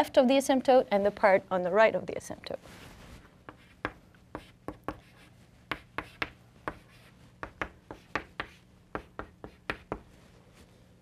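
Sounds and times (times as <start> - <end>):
chalk tapping and scratching: 3.2 - 10.2.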